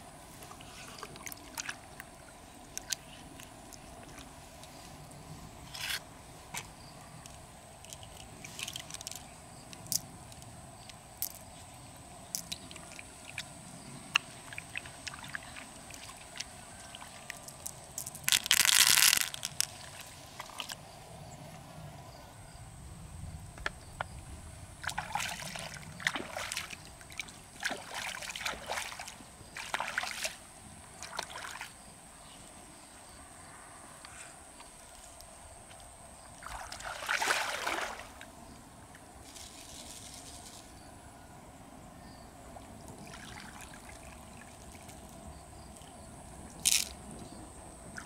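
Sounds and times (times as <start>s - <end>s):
water sloshing and splashing: 0.4s - 4.4s, 14.2s - 20.8s, 24.8s - 31.8s, 36.3s - 38.2s, 43.0s - 45.2s.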